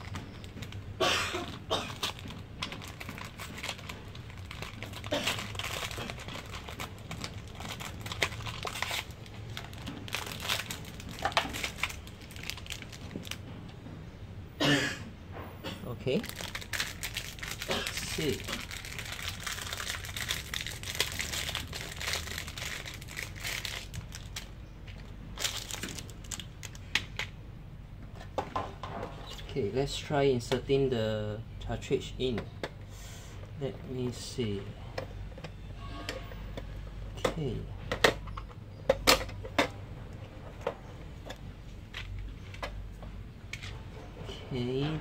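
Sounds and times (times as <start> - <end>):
plastic packaging crinkling: 1.5 - 13.4, 16.2 - 26.9.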